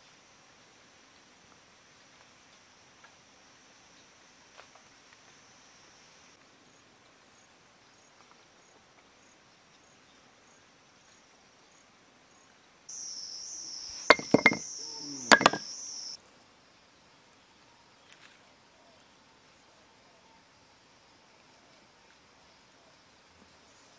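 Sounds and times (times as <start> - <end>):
high insect buzz: 12.9 - 16.2
bamboo pieces knocking and clicking: 14.1 - 15.7.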